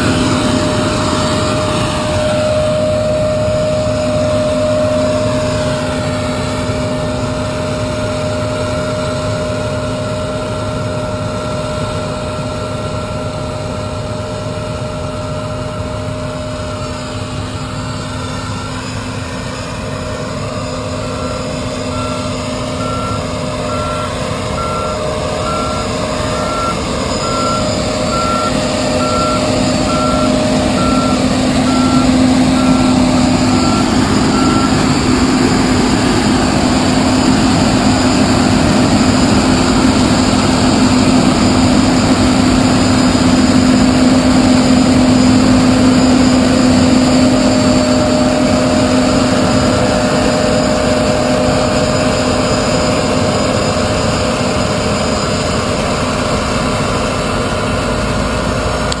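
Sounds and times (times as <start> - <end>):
combine harvester droning: 0.0 - 59.0
back-up alarm beeping: 20.4 - 49.9.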